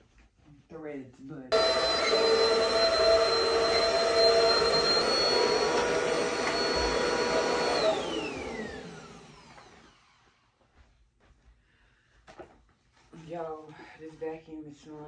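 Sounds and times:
vacuum cleaner motor whining: 1.5s - 10.2s.

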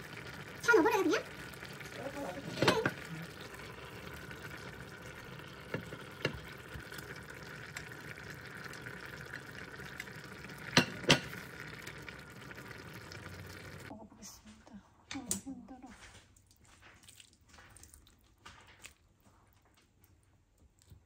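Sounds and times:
sauce bubbling in a pan: 0.0s - 13.9s.

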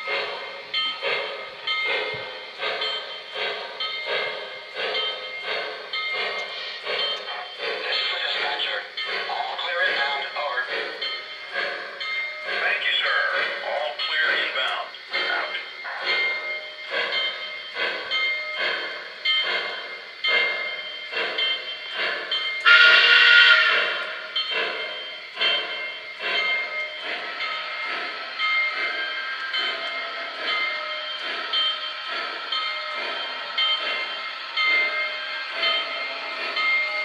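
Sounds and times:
model steam locomotive chuffing: 0.0s - 37.0s
locomotive whistle blast: 22.6s - 24.0s.

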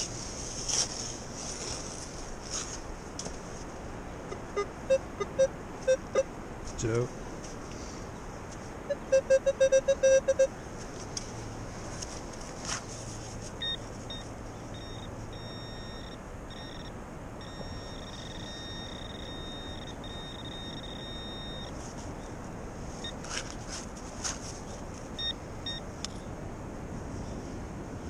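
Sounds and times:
metal detector high-pitched tone: 4.3s - 6.3s, 8.9s - 10.5s, 13.6s - 21.7s.

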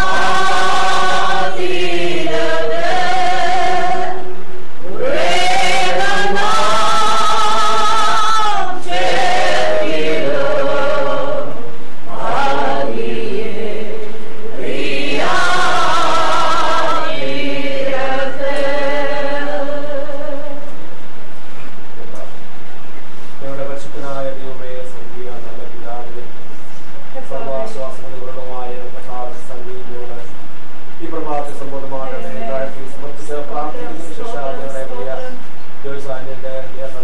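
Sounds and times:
women singing a slow hymn: 0.0s - 20.8s.

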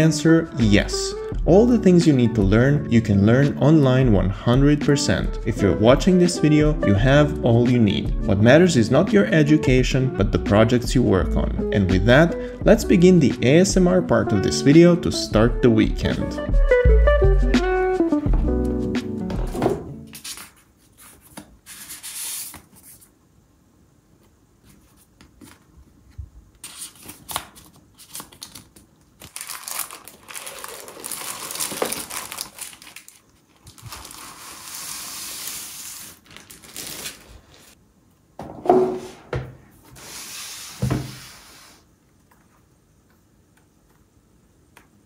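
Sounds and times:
plastic and paper crinkling: 26.6s - 37.8s.

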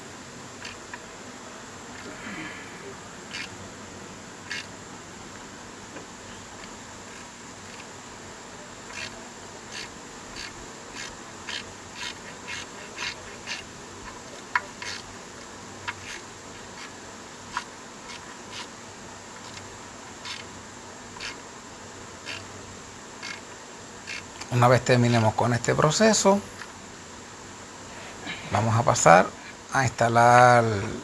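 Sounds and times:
ratchet wrench clicking: 0.6s - 0.9s, 3.3s - 3.5s, 4.4s - 4.7s, 8.9s - 15.1s, 19.4s - 20.5s, 21.2s - 21.4s, 22.2s - 22.4s, 23.2s - 23.4s, 24.1s - 24.5s.

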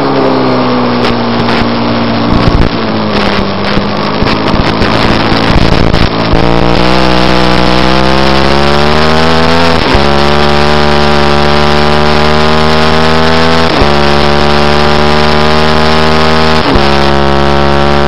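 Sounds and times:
wind rush: 0.0s - 10.1s
motorcycle engine at full throttle: 0.0s - 18.0s.

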